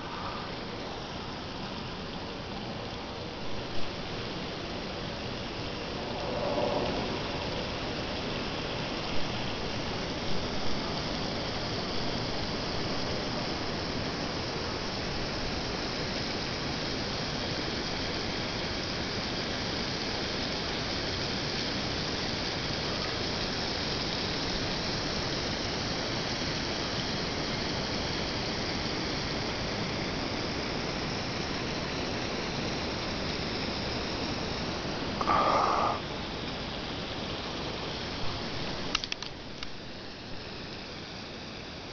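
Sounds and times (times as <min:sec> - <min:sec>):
steady hiss-like noise: 0:00.0 - 0:41.9
burst of noise: 0:35.0 - 0:36.3.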